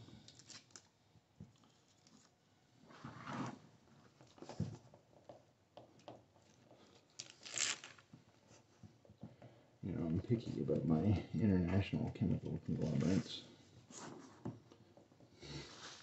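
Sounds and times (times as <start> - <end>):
plastic strip crinkling: 0.3 - 0.9, 7.1 - 8.1.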